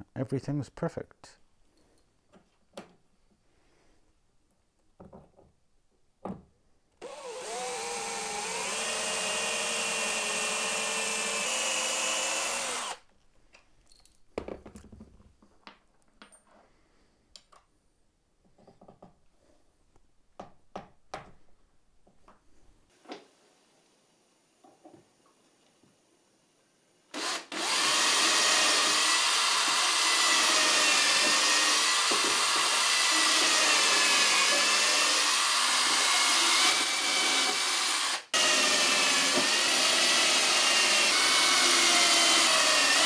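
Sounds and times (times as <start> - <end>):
cordless drill boring into wood: 7.0 - 13.0, 27.1 - 43.0
clicks and knocks of handling tools: 17.3 - 17.7.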